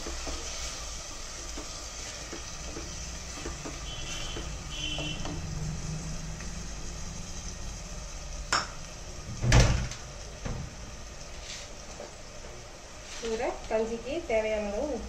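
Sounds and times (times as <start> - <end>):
faint sizzle: 0.0 - 15.0
wooden spatula scraping a pot: 1.4 - 5.2.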